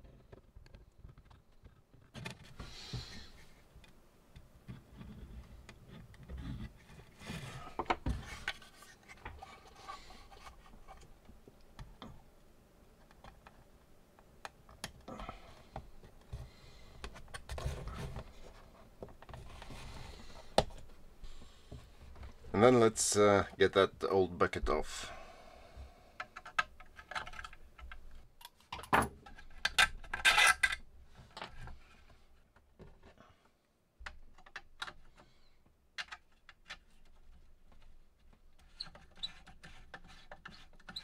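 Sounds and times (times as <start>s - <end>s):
plastic rubbing and scraping: 4.6s - 11.3s, 16.0s - 23.5s, 36.2s - 41.0s.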